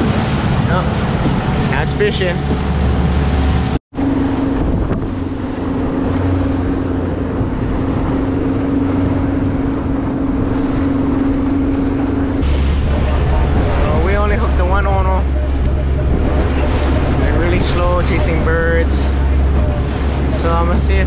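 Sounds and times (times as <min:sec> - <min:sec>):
low rumble: 0:00.0 - 0:21.0
motorboat engine humming: 0:00.0 - 0:21.0
wake rushing: 0:00.0 - 0:21.0
wind on microphone: 0:00.0 - 0:21.0.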